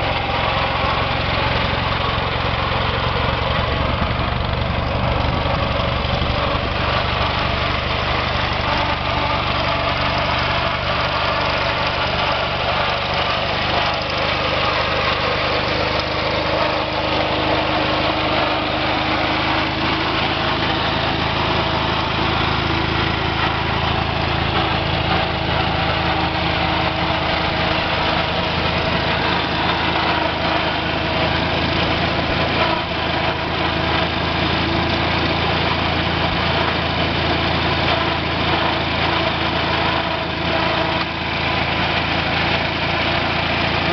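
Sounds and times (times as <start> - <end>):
garden tractor engine running: 0.0 - 43.9.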